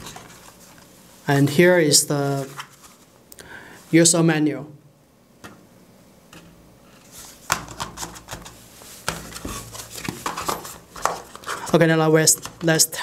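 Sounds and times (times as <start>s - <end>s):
cardboard packaging clicks and knocks: 7.4s - 11.4s.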